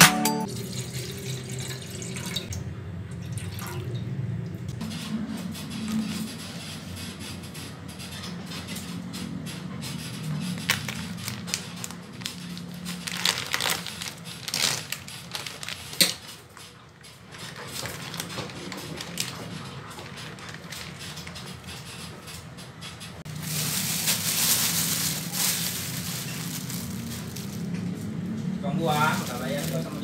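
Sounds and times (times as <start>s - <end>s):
thin plastic bag rustling: 10.6s - 16.0s, 17.5s - 21.0s, 23.3s - 28.1s, 28.8s - 30.0s
plastic packaging crinkling: 10.6s - 16.2s, 17.5s - 21.3s, 23.3s - 28.0s, 28.8s - 30.0s.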